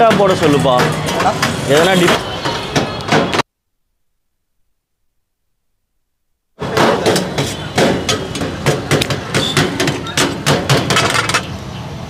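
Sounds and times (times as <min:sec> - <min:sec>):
knife chopping on steel tray: 0:06.6 - 0:11.2.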